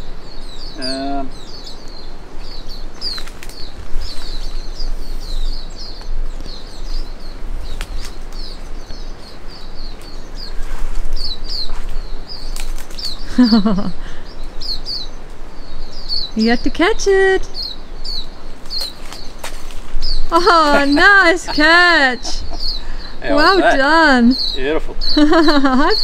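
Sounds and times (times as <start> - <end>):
small birds chirping: 0.0 - 26.0
wind rumble on microphone: 14.3 - 21.3.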